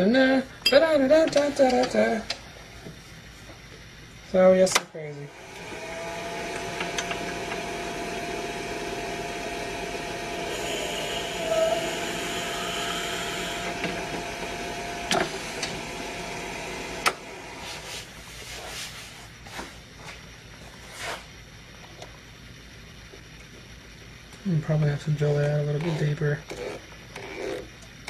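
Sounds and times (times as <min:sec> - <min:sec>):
drill bit boring: 0:05.3 - 0:17.6
lathe whining: 0:05.3 - 0:18.1.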